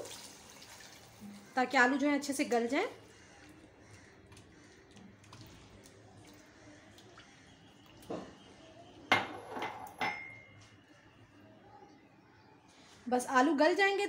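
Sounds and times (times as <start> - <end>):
wet stirring of curry: 2.3 - 9.0.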